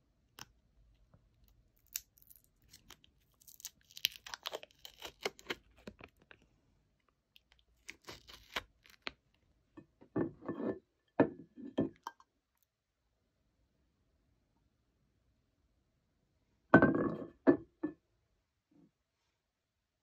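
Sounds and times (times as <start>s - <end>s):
plastic packaging crinkling: 1.9s - 6.4s.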